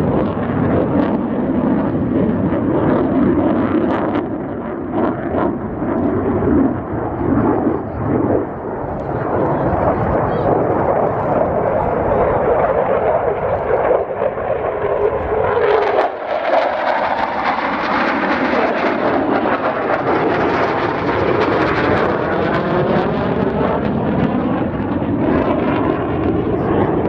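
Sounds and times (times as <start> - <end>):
jet engine roaring overhead: 0.0 - 27.0.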